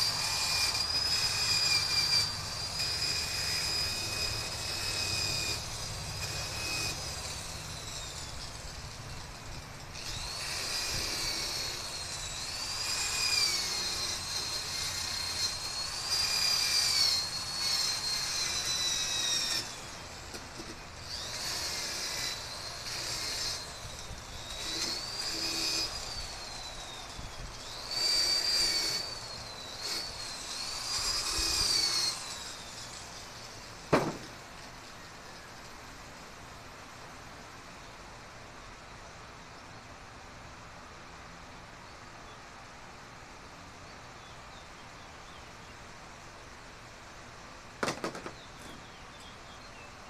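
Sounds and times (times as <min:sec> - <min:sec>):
angle grinder grinding metal: 0:00.0 - 0:34.4
sharp knock: 0:33.9 - 0:34.3.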